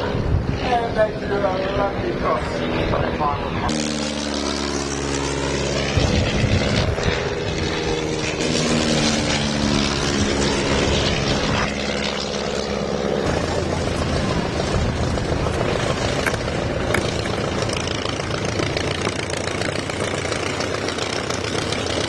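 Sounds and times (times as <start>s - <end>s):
propeller plane engine drone: 0.0s - 22.0s.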